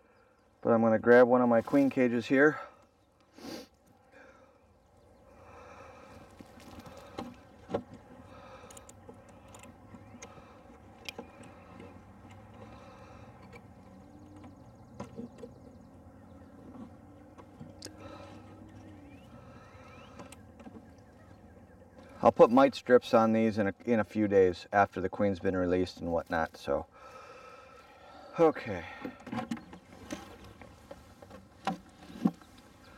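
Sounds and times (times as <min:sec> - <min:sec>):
honey bees buzzing: 0:05.3 - 0:22.2
clicks and knocks on wood: 0:06.4 - 0:08.1.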